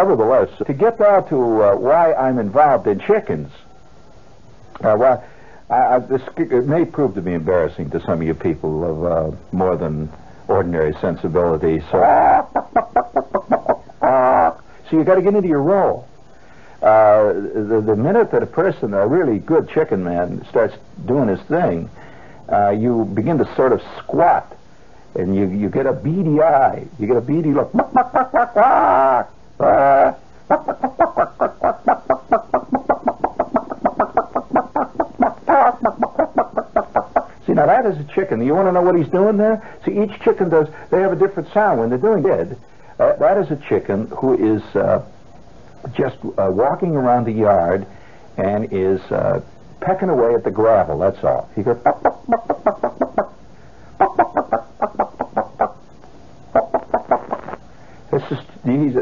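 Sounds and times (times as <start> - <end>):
man imitating chicken clucks: 12.0 - 14.6, 27.6 - 37.4, 51.7 - 53.4, 54.0 - 55.8, 56.5 - 57.6.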